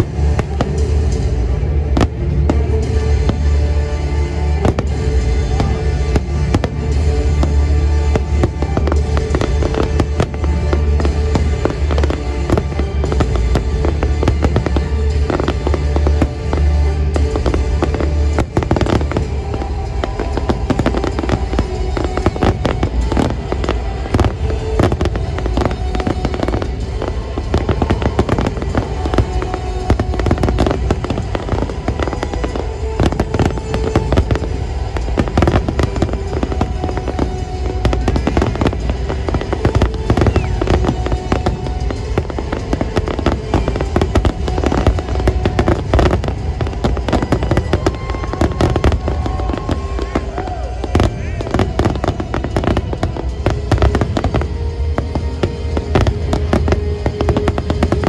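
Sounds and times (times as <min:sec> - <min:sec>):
fireworks bangs and crackles: 0:00.0 - 0:58.0
music playing: 0:00.0 - 0:58.0.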